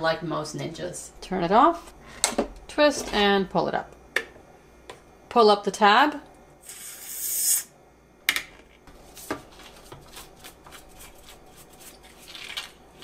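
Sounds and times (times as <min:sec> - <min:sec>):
air hissing into vacuum cup: 0:06.6 - 0:07.7.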